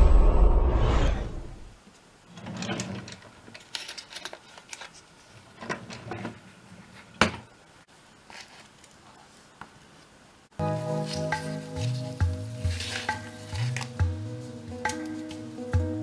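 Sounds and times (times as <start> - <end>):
desk drawer sliding open: 2.3 - 3.3
small items rattling and clicking: 2.4 - 6.4.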